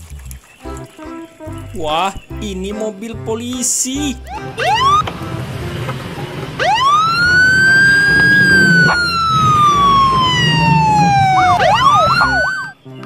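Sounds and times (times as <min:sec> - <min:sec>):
police siren wailing and yelping: 0:04.3 - 0:12.8.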